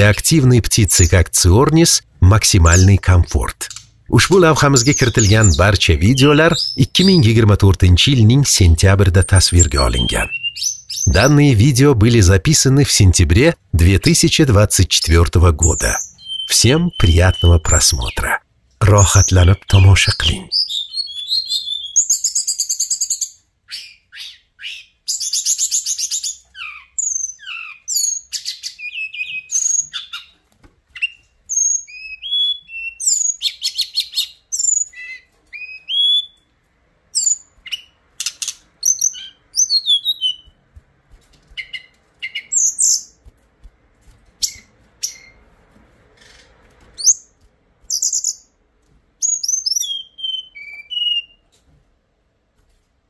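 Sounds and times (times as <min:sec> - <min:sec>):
bird singing whistled phrases: 0:09.6 - 0:11.2, 0:15.9 - 0:17.8, 0:20.5 - 0:22.9, 0:31.0 - 0:36.4, 0:49.2 - 0:51.4.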